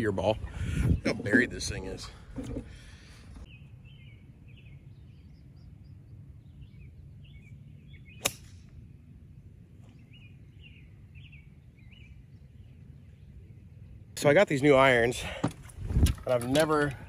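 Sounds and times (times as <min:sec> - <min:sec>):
birds chirping: 0:00.0 - 0:17.0
golf club striking ball: 0:08.2 - 0:08.7.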